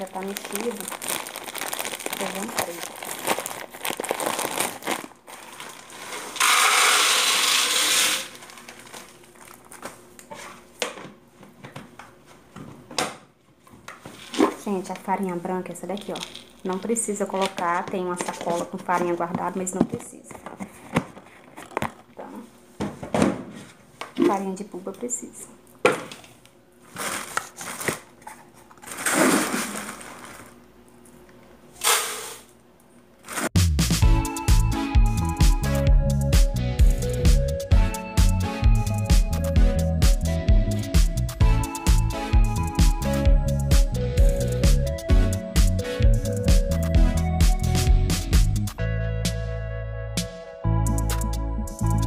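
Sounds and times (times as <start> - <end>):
plastic packaging rustle: 0.0 - 10.6, 15.7 - 22.4, 26.8 - 30.6
dry beans pouring into canister: 5.4 - 8.6, 16.0 - 16.8
plastic canisters and lids clicking: 15.9 - 23.4.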